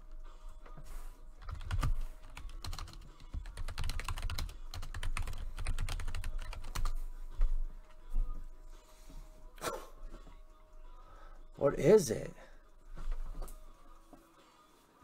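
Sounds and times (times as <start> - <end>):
keyboard typing: 1.4 - 7.0.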